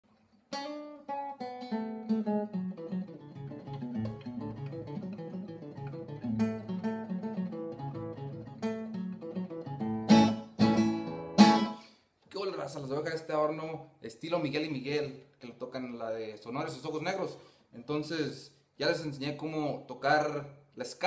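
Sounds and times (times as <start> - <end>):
twelve-string acoustic guitar lead: 0.1 - 11.9
strummed guitar chords: 0.6 - 11.8.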